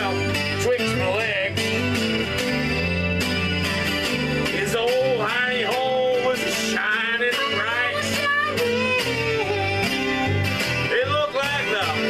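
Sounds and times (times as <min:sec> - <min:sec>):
man singing: 0:00.0 - 0:01.8, 0:04.4 - 0:12.0
acoustic guitar strumming: 0:00.0 - 0:12.0.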